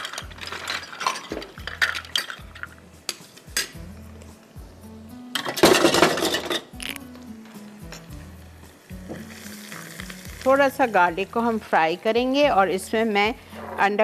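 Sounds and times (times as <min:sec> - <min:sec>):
background music: 0:00.0 - 0:14.0
garlic frying in hot oil: 0:08.9 - 0:12.4.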